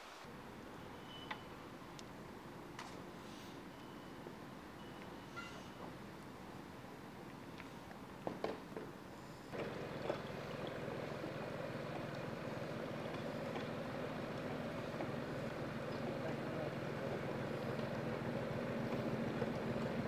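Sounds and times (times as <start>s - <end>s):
boat engine running: 9.6s - 20.0s.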